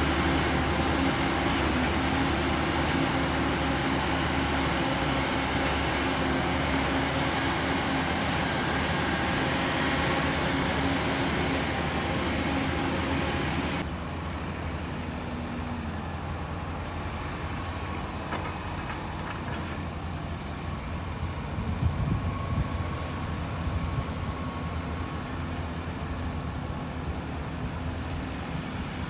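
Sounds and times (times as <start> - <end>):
dump truck engine: 0.0 - 29.0
excavator engine working: 0.0 - 29.0.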